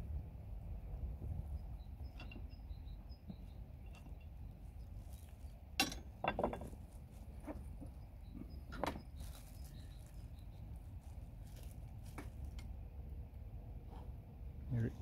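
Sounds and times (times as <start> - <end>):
low steady rumble: 0.0 - 15.0
faint bird chirps: 1.5 - 5.3, 7.8 - 10.8
plastic bag rustling: 9.1 - 12.5.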